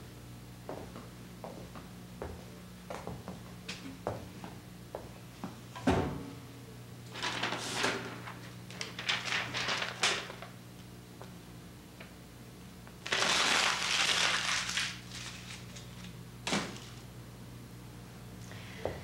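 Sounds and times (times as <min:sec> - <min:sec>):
low electrical hum: 0:00.0 - 0:19.0
paper rustling and crumpling: 0:07.1 - 0:10.6, 0:13.0 - 0:17.0.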